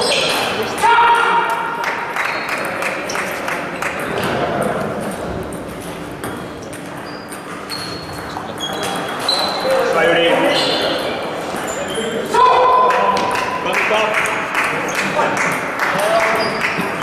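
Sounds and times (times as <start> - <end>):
table tennis balls clicking: 1.9 - 9.7.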